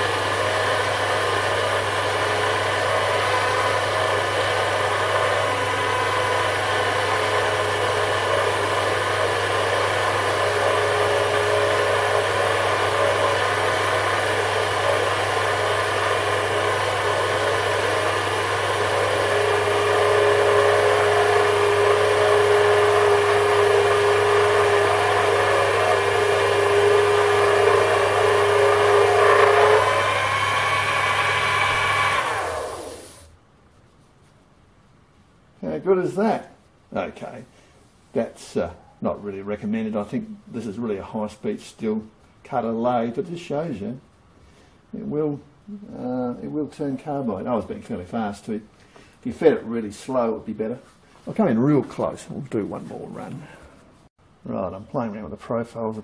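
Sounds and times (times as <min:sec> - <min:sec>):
lathe spinning down: 0:00.0 - 0:33.3
metal lathe cutting steel: 0:00.0 - 0:33.3.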